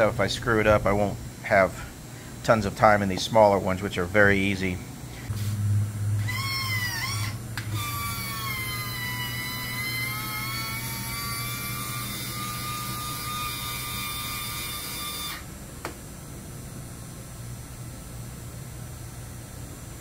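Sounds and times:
motor low hum: 0.0s - 20.0s
drill press hole saw whine: 6.1s - 15.5s.

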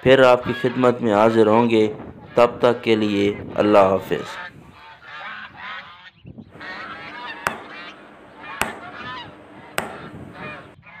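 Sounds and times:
geese honking: 0.3s - 1.1s, 4.1s - 11.0s
sharp clicks: 6.6s - 10.8s.

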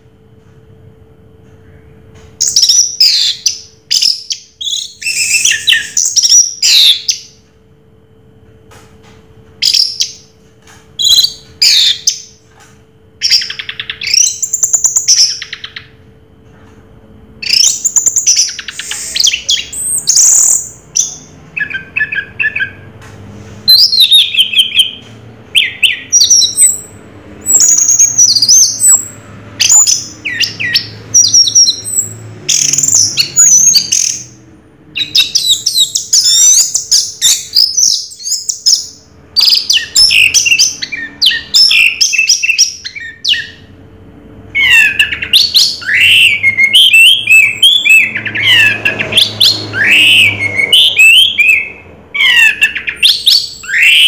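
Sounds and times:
bird singing whistled phrases: 2.4s - 7.3s, 17.4s - 22.9s, 25.6s - 34.3s, 35.0s - 43.6s, 44.6s - 54.0s.

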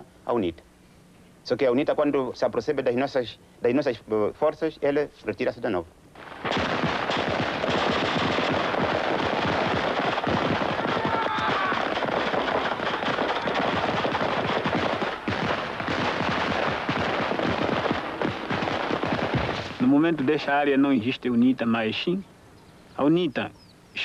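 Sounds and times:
automatic gunfire: 6.2s - 20.0s.

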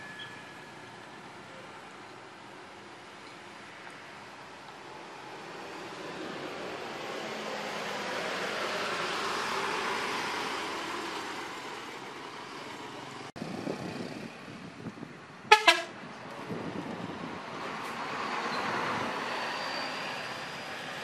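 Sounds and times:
bus driving past: 0.0s - 21.0s
bus horn toots: 15.5s - 16.0s.

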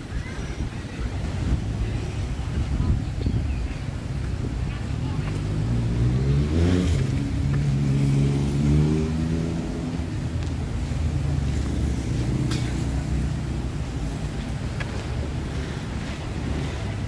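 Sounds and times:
low traffic rumble: 0.0s - 17.0s
passing vehicle engine: 5.0s - 17.0s.

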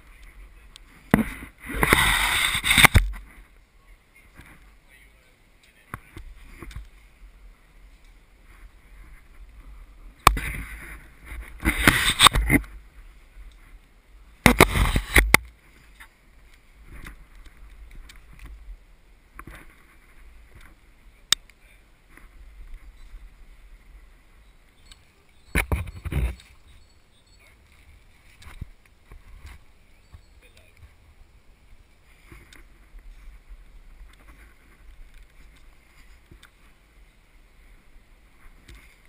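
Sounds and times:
camera rustling and scraping on rock: 0.1s - 3.6s, 4.3s - 4.8s, 5.8s - 7.2s, 7.8s - 12.8s, 14.4s - 18.6s, 19.3s - 20.8s, 22.1s - 24.1s, 24.8s - 26.8s, 27.5s - 31.0s, 32.0s - 36.8s, 38.2s - 39.0s.

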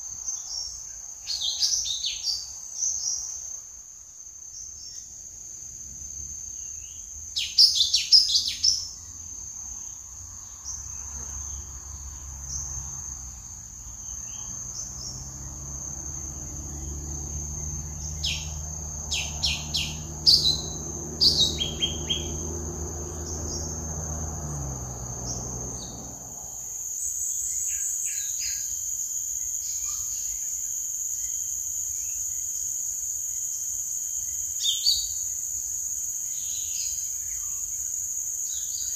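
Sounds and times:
bird chirping: 0.3s - 3.6s, 6.4s - 12.9s, 13.8s - 24.2s
high-pitched insect drone: 7.6s - 31.3s.

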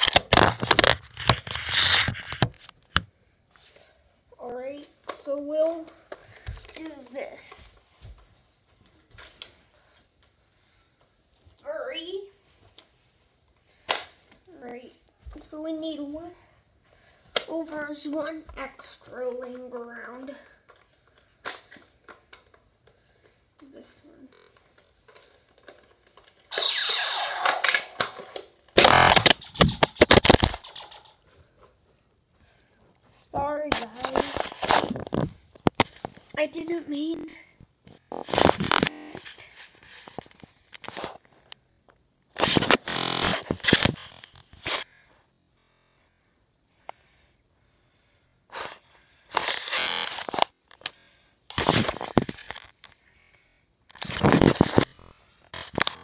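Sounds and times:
phone microphone rustling and scraping: 0.0s - 2.8s, 33.2s - 37.3s, 37.9s - 41.5s, 42.4s - 44.8s, 51.5s - 52.9s, 53.9s - 56.0s
toy blaster being readied: 26.5s - 31.2s
toy blaster firing burst: 26.5s - 31.2s.

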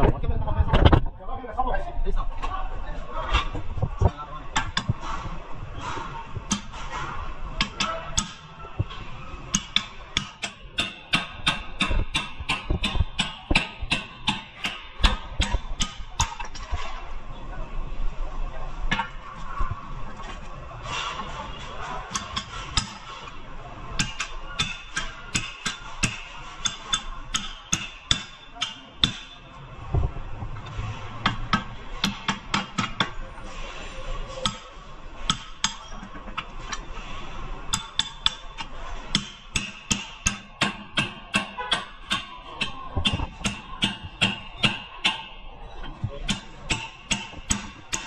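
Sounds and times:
hammer striking metal: 6.5s - 8.5s, 9.5s - 16.4s, 24.0s - 29.4s, 31.2s - 33.1s, 34.4s - 36.0s, 37.7s - 45.4s, 46.3s - 48.0s.

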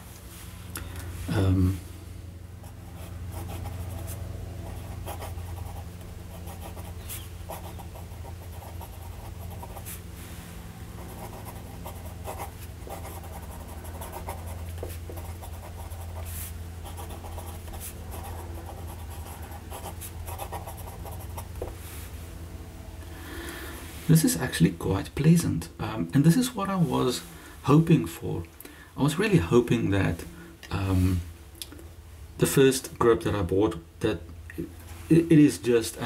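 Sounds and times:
fountain pen scratching paper: 11.2s - 16.2s, 16.8s - 21.4s.

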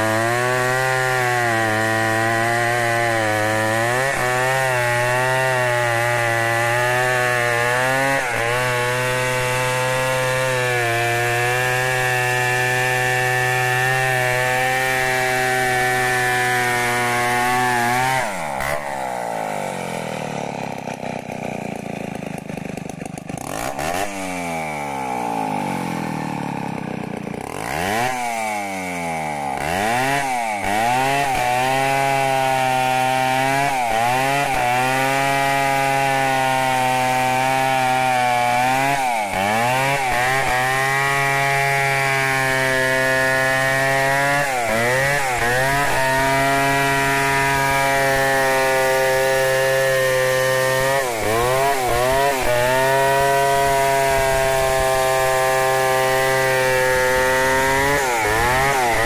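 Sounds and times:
chainsaw ripping a log: 0.0s - 59.0s.

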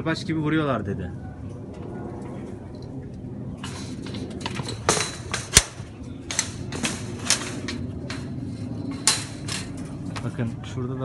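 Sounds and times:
phone clicking against wire mesh: 3.6s - 10.0s.

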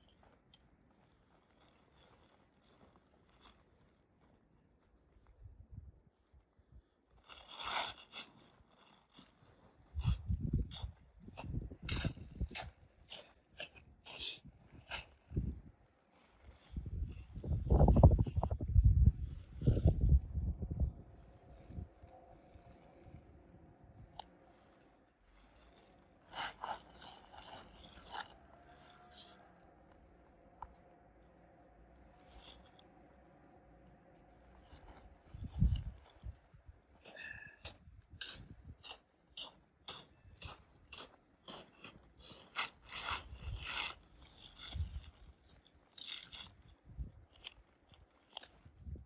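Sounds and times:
footsteps crunching in snow: 0.0s - 5.4s, 6.0s - 20.3s, 21.1s - 49.0s
tent fabric rustling: 0.0s - 5.4s, 6.1s - 20.2s, 21.1s - 30.2s, 34.2s - 37.6s.

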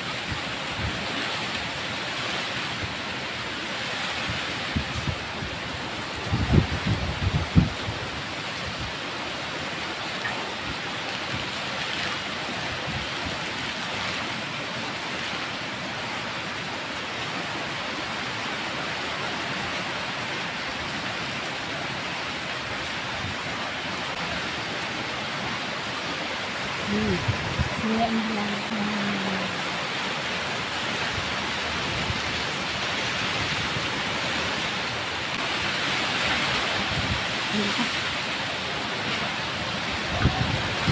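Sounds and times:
heavy rain pouring: 0.0s - 40.9s
wind buffeting microphone: 4.2s - 9.0s, 26.7s - 28.9s, 30.9s - 34.6s, 35.3s - 38.0s, 39.6s - 40.9s.

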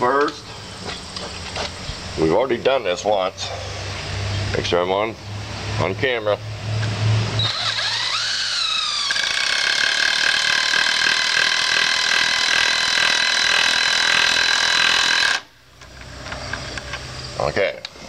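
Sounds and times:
impact driver motor spinning up: 7.4s - 15.5s.

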